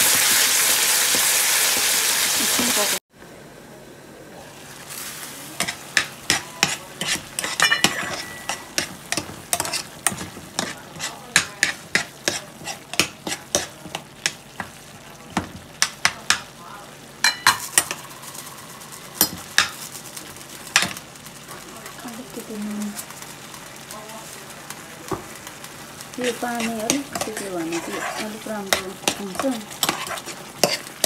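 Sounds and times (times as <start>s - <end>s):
soft sizzle: 0.0s - 31.0s
metal spoon scraping a pan: 5.6s - 14.4s, 26.2s - 31.0s.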